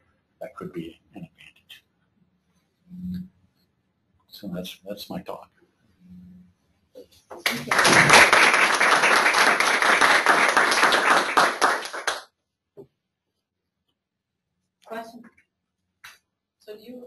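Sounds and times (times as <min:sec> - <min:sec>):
audience applauding: 0:07.4 - 0:12.3.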